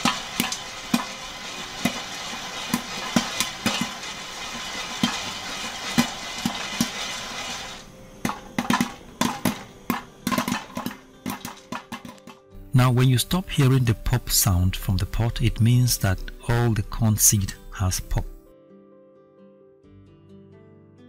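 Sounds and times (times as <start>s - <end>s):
pot shaking and rattling: 0.0s - 12.5s
popcorn kernels popping: 0.0s - 12.6s.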